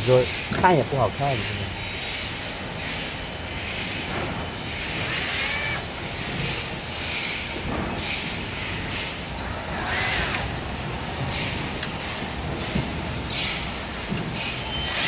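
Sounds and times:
power tool running: 0:04.7 - 0:06.7, 0:09.4 - 0:10.7.

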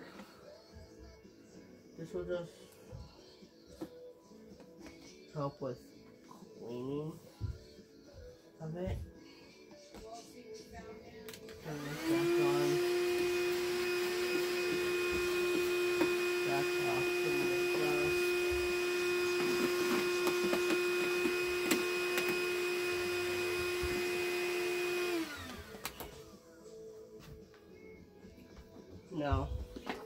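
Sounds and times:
vacuum cleaner whine: 0:11.6 - 0:26.4.

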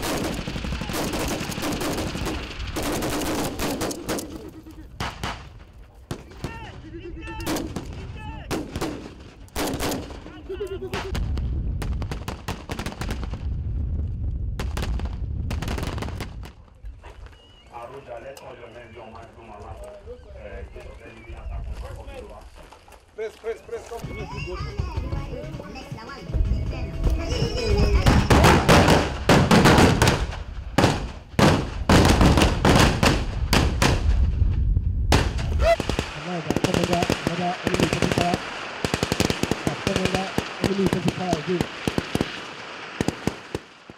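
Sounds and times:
gunfire in rapid bursts: 0:00.0 - 0:04.4, 0:08.5 - 0:10.2, 0:28.1 - 0:34.1, 0:35.1 - 0:43.9
rifle gunshots: 0:00.0 - 0:04.4, 0:07.4 - 0:10.2, 0:28.1 - 0:34.2, 0:35.1 - 0:43.9
low rumble: 0:13.2 - 0:15.7, 0:33.3 - 0:35.7.

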